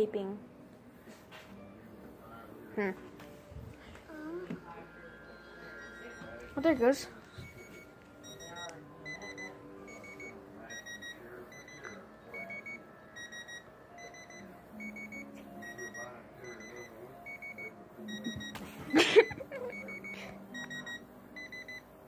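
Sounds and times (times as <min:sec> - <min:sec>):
remote locator beeping: 0:05.0 - 0:22.0.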